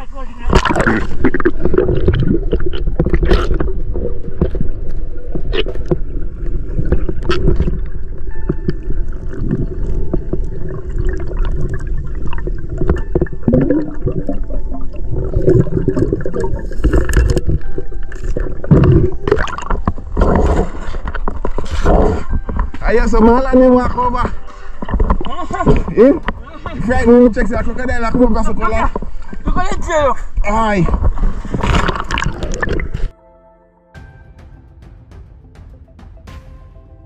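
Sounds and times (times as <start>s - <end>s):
water sloshing and gurgling: 0.0s - 33.1s
steady low rumble: 1.1s - 8.3s.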